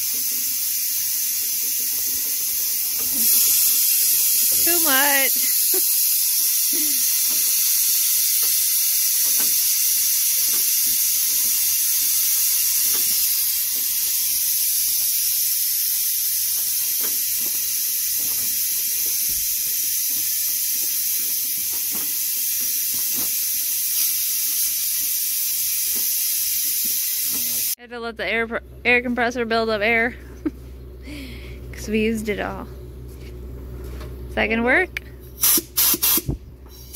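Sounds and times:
compressed air hissing: 0.0 - 27.8, 35.4 - 36.9.

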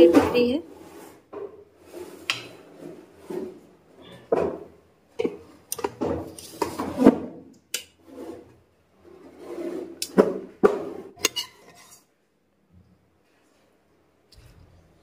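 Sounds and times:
metal ladle scraping and clinking: 11.2 - 12.1.

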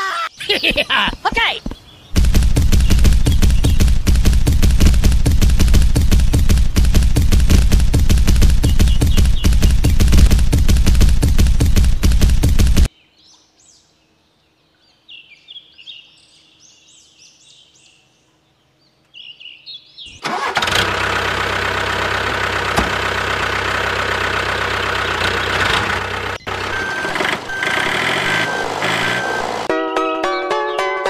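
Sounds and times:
engine running: 2.2 - 12.9, 20.2 - 29.7.

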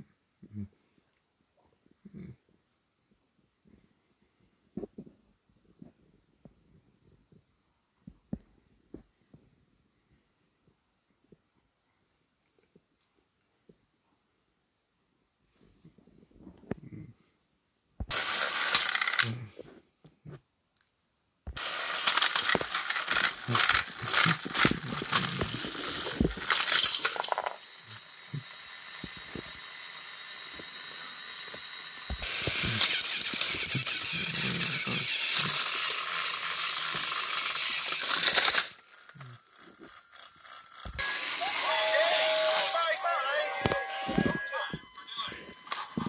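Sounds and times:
plastic toy trains clattering: 18.1 - 19.4, 21.6 - 40.8
steady whirring: 21.6 - 46.0.

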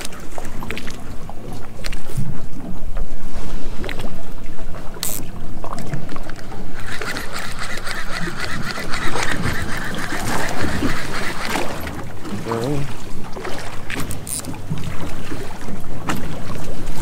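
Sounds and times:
wind on microphone: 0.0 - 17.0
fishing reel whirring: 5.0 - 5.2, 6.3 - 12.6, 14.1 - 14.5.

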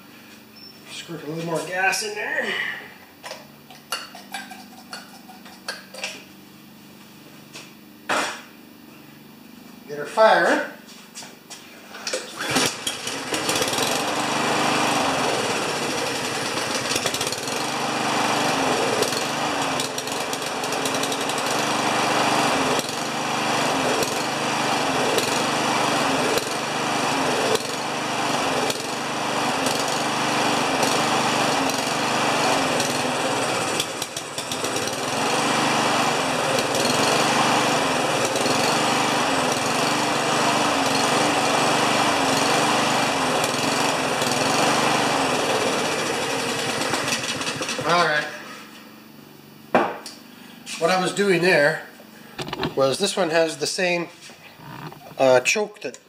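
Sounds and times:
lawn mower engine surging: 12.0 - 49.3, 50.2 - 55.6.

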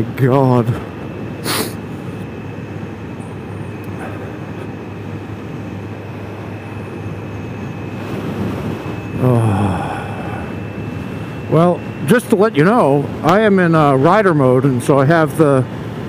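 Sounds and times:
wind and road noise: 0.0 - 16.0.

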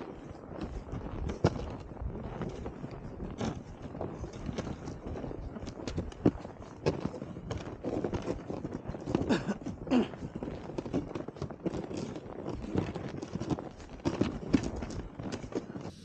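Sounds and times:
footsteps crunching through snow: 0.0 - 16.0
sleds dragged across snow: 0.0 - 16.0.

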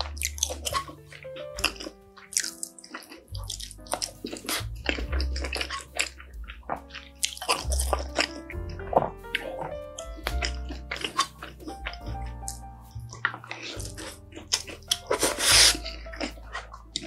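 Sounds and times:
wet chewing and smacking: 0.0 - 17.0
background music with bass line: 3.3 - 17.0.

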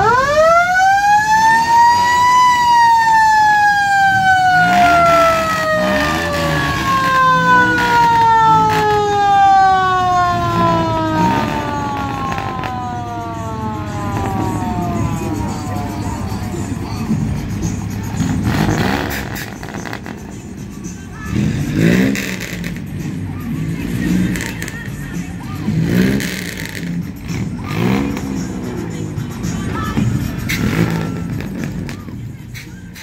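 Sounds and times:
siren whooping: 0.0 - 16.9.

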